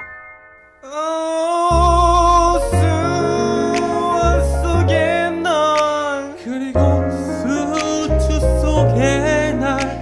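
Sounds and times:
person singing long note: 0:00.8 - 0:04.3
bass and keyboard: 0:01.6 - 0:10.0.

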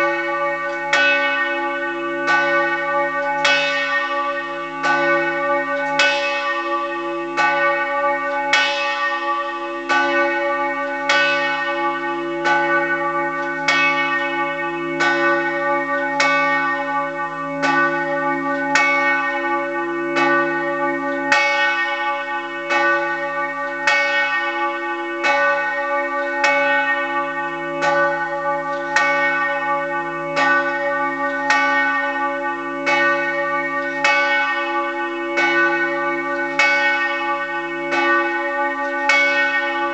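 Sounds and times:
church bell ringing: 0:00.0 - 0:39.9.

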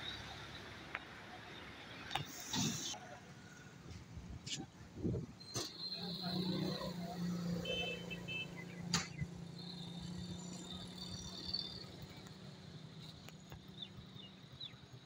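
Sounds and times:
vehicle engine humming: 0:05.7 - 0:15.0
sharp click: 0:08.9 - 0:09.2.

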